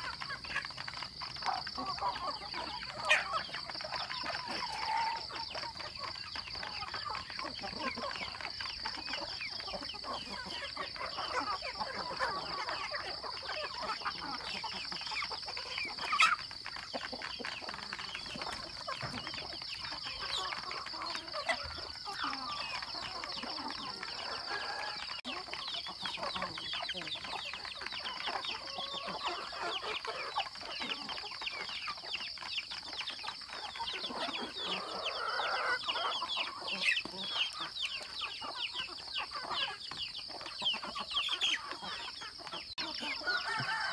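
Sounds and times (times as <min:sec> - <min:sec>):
young chickens clucking and peeping: 0:00.0 - 0:43.9.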